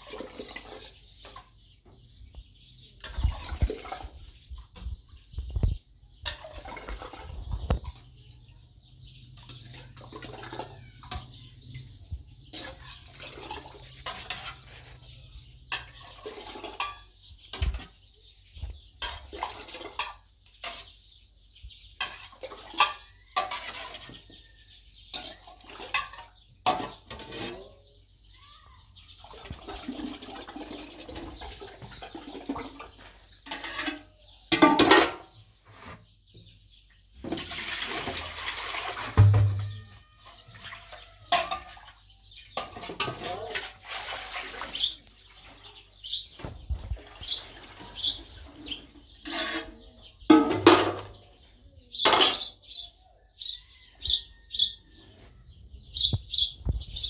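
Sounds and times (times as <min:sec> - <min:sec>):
sloshing liquid: 0:03.0 - 0:04.7, 0:06.2 - 0:08.0, 0:09.4 - 0:11.2, 0:12.5 - 0:14.7, 0:29.2 - 0:33.6, 0:37.2 - 0:45.9, 0:46.6 - 0:49.7.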